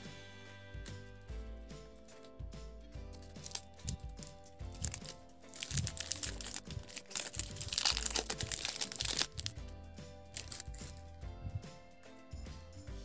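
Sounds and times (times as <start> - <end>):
background music: 0.0 - 13.0
plastic wrapper crinkling: 3.1 - 9.7, 10.3 - 11.1.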